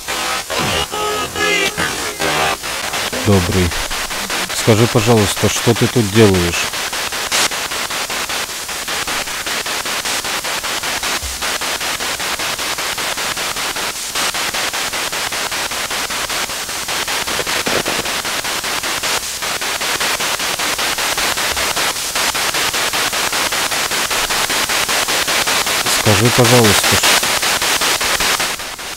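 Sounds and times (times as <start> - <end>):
pulsing radio static: 0.0 - 7.5, 17.3 - 18.7, 25.9 - 27.2.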